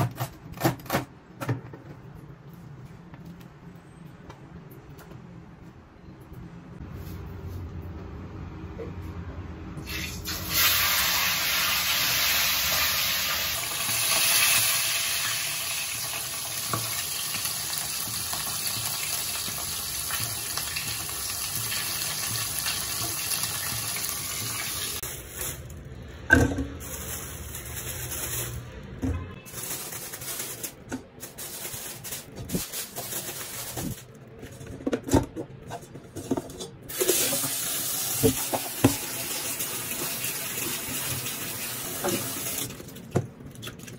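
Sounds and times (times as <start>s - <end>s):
hot oil sizzling: 9.8s - 25.0s, 36.9s - 42.6s
tap water running into pot: 9.9s - 25.0s.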